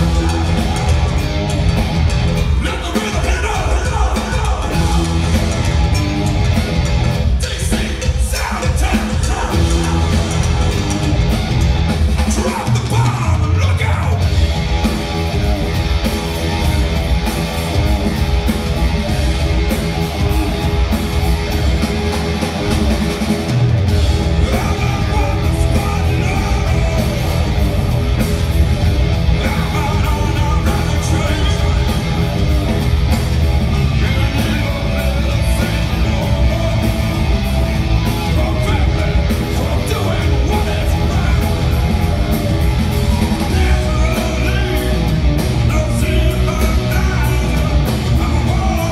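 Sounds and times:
bass guitar: 0:00.0 - 0:48.9
drums: 0:00.0 - 0:48.9
electric guitar: 0:00.0 - 0:48.9
person singing: 0:24.2 - 0:27.7, 0:29.3 - 0:32.3, 0:33.7 - 0:37.4, 0:43.1 - 0:48.9.

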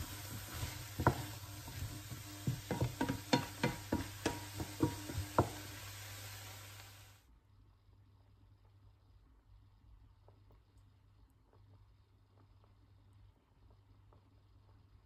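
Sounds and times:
spatula clacking against pan: 0:00.0 - 0:06.4
vegetables sizzling in frying pan: 0:00.0 - 0:07.2.

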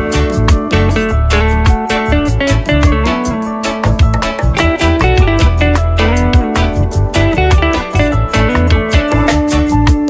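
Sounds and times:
bass: 0:00.0 - 0:10.0
plucked guitar melody: 0:00.0 - 0:10.0
steady drum beat: 0:03.8 - 0:10.0.

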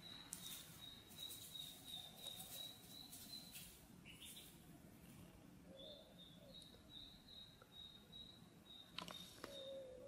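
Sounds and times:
faint high-pitched chirps: 0:00.0 - 0:04.6, 0:05.7 - 0:10.0.

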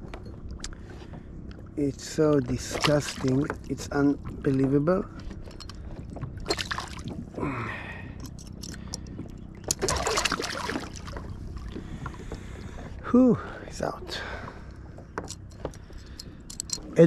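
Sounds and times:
fish thrashing and splashing: 0:02.4 - 0:04.5, 0:05.4 - 0:07.6, 0:08.3 - 0:12.1.

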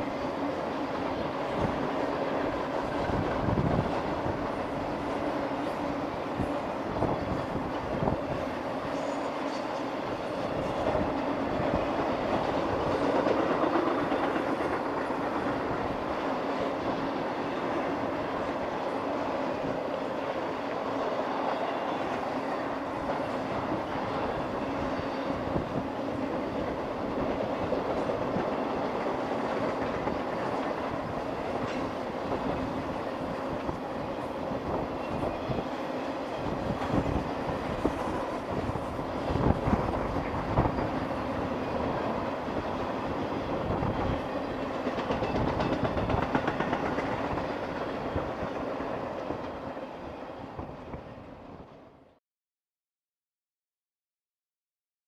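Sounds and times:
train cars clanking: 0:00.0 - 0:51.9
freight train rumble: 0:00.0 - 0:52.2
train wheels clattering over rail joints: 0:08.9 - 0:17.9, 0:36.3 - 0:49.8.

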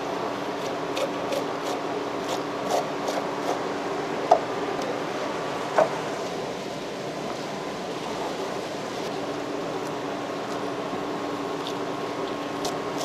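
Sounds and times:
steady background hum: 0:00.0 - 0:13.0
knife scraping cutting board: 0:00.5 - 0:03.6.

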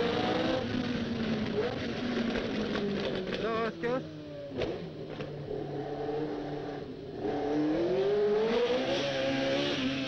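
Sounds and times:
racing car engine revving: 0:05.8 - 0:10.0.

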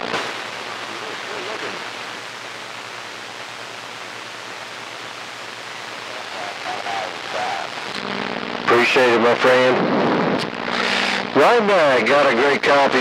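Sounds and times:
radio static hiss: 0:00.0 - 0:13.0
faint distant voice on radio: 0:06.0 - 0:07.8.

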